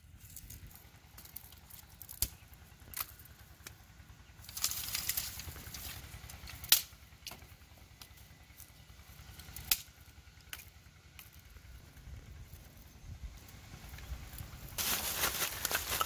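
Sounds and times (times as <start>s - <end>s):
dry sticks snapping: 1.2s - 3.8s, 4.4s - 8.6s, 9.4s - 11.4s
twigs cracking: 4.4s - 7.4s, 14.8s - 16.0s
dry brush rustling: 14.8s - 16.0s.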